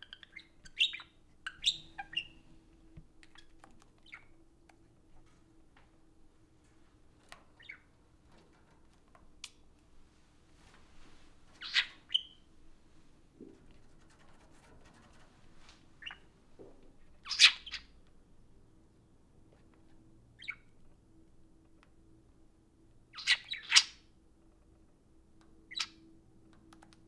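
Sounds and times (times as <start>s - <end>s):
budgerigars chirping: 0.0s - 2.4s, 7.6s - 7.8s, 11.6s - 12.4s, 16.0s - 16.2s, 17.2s - 17.9s, 20.4s - 20.7s, 23.2s - 24.0s, 25.7s - 26.0s.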